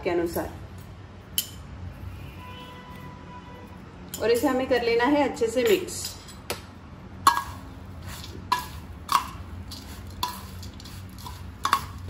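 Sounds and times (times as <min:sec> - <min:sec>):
spoon clinking on steel bowl: 0:07.3 - 0:07.6, 0:08.5 - 0:12.0
spoon scraping through mix: 0:07.3 - 0:12.0.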